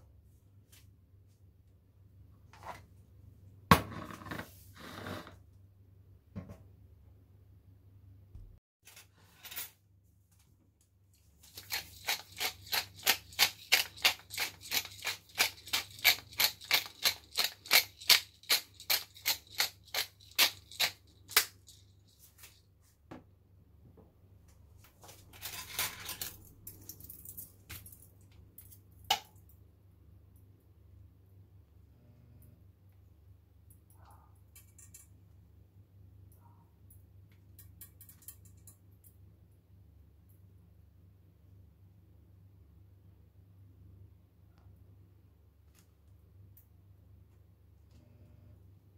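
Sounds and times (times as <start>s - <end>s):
pepper mill grinding: 11.4s - 22.1s.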